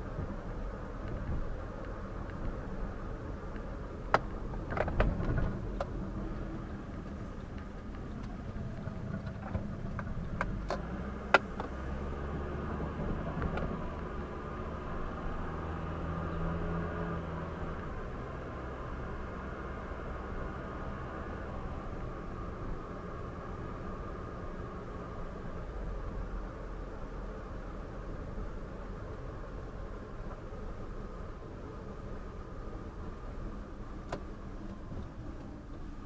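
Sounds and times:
car engine and road hum: 0.0 - 36.0
deep engine hum: 0.0 - 36.0
sharp clicks and knocks: 3.5 - 11.8.

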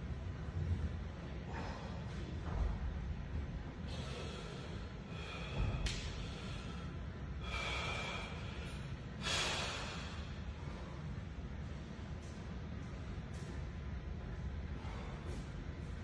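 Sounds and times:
low steady hum: 0.0 - 16.0
man breathing out hard: 3.9 - 11.1.

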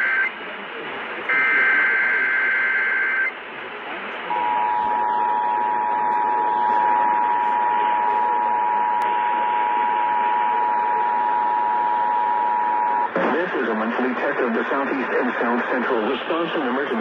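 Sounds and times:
radio hiss: 0.0 - 17.0.

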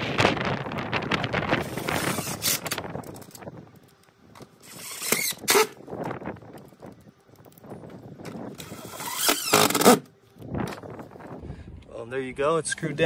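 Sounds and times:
power drill driving screws into metal: 4.6 - 5.8, 8.6 - 10.1.

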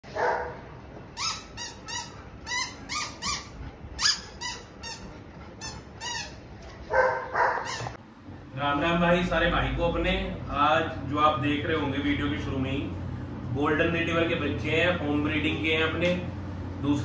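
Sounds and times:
dog whining yelps: 1.2 - 5.1, 5.7 - 8.0.

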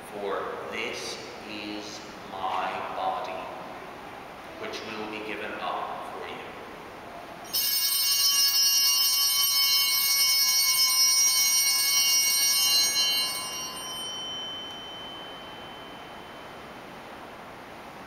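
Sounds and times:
altar bells ringing: 7.4 - 17.0.

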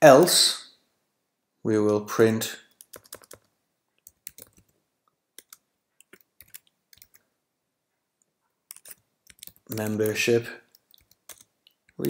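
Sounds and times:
computer keyboard typing: 2.7 - 4.8, 5.4 - 7.2, 8.7 - 12.0.

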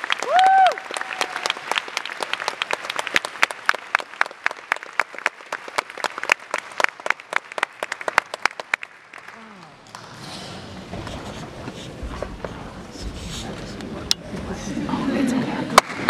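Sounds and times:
audience applauding: 0.0 - 10.0, 15.8 - 16.0
loud close hand claps: 0.0 - 10.0, 15.8 - 16.0.

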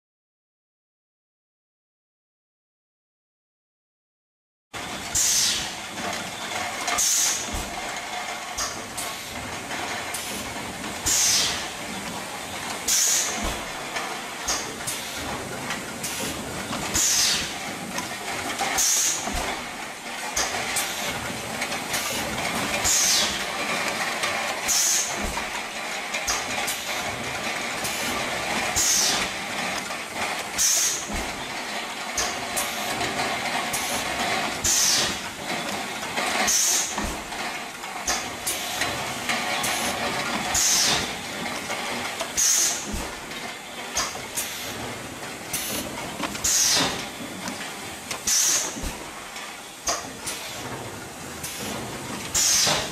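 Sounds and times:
steady machine noise: 4.8 - 52.9
compressed air hissing: 48.2 - 49.0.

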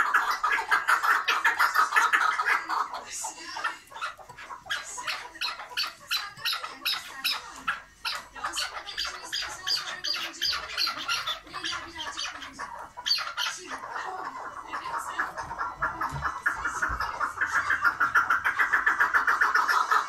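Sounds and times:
partridge calling: 0.0 - 20.0.

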